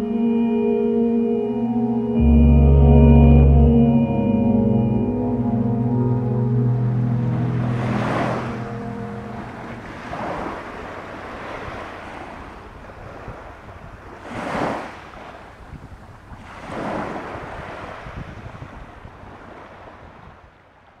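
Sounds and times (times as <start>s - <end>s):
breaking surf: 5.1s - 13.5s
wind rumble on microphone: 6.8s - 20.6s
small waves washing onto sand: 9.7s - 21.0s.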